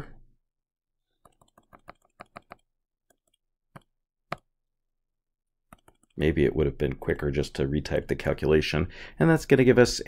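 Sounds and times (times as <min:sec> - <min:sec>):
computer mouse clicks: 0:01.2 - 0:04.5, 0:05.7 - 0:06.2.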